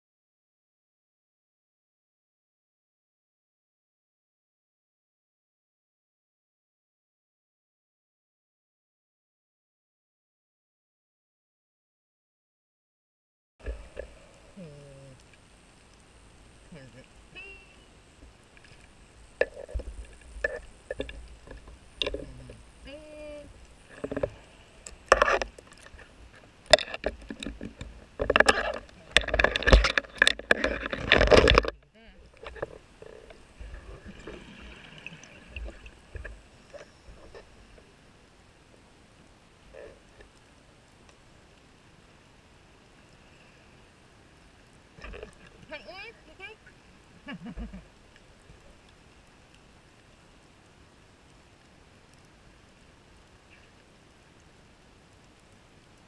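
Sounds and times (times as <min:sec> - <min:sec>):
faint underwater hiss: 0:13.6 - 0:31.2, 0:31.9 - 0:56.0
faint clicks and crackles: 0:13.6 - 0:42.2, 0:44.4 - 0:56.0
underwater exhaled bubbles: 0:18.6 - 0:22.9, 0:23.5 - 0:37.9.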